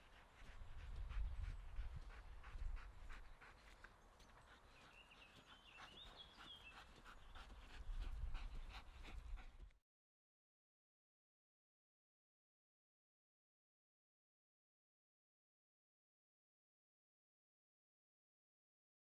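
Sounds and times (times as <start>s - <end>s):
dog panting: 0.0s - 9.8s
bird singing: 4.2s - 7.7s.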